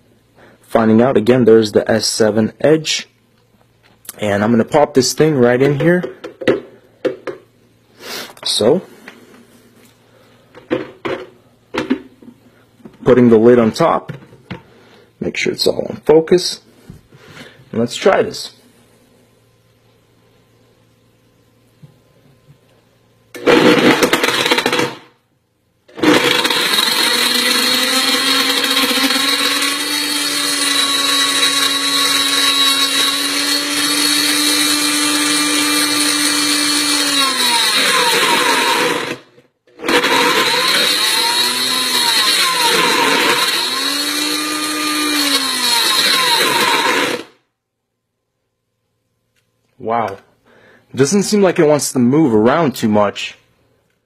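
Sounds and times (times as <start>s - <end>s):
blender motor struggling: 23.4s - 25.1s, 25.9s - 47.4s.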